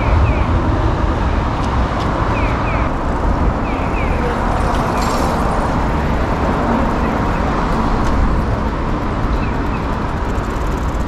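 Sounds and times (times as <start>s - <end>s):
road traffic noise: 0.0s - 11.0s
people's voices: 3.8s - 8.4s.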